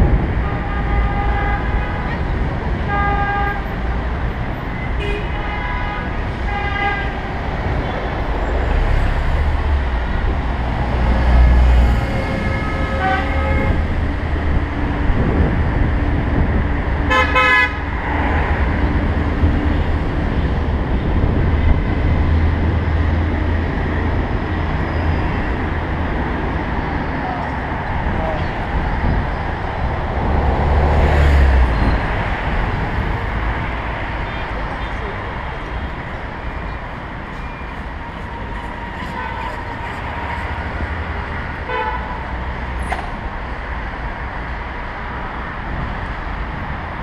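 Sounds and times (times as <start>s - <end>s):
city street traffic: 0.0s - 47.0s
wind and road rumble: 0.0s - 47.0s
vehicle horns tooting: 0.4s - 3.8s, 4.8s - 8.0s, 11.2s - 14.0s, 17.1s - 17.8s, 41.6s - 42.2s
sharp horn blast: 11.4s - 13.9s, 17.1s - 17.8s.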